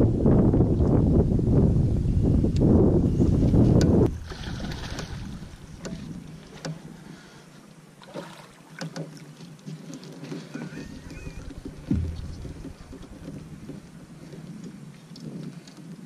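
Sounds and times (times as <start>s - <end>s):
faint wind: 0.0s - 16.0s
light water splashing: 4.0s - 7.4s, 8.0s - 16.0s
short knocks: 11.4s - 14.4s.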